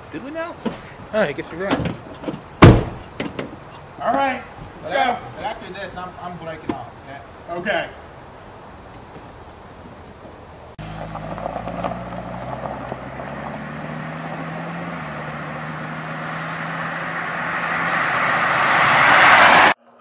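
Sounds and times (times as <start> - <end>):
car engine humming: 0.0 - 20.0
road noise: 0.0 - 20.0
vehicle approaching: 8.2 - 20.0.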